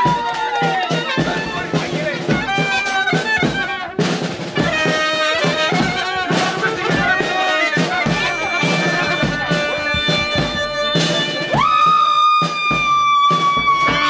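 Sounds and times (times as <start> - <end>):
folk dance music: 0.0 - 14.0
reedy wind instrument melody: 0.0 - 14.0.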